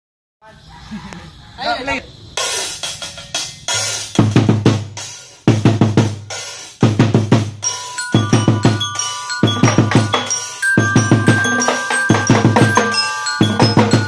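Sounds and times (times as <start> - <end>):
snare drums and cymbals: 2.4 - 14.0
bell-lyre notes: 7.5 - 14.0.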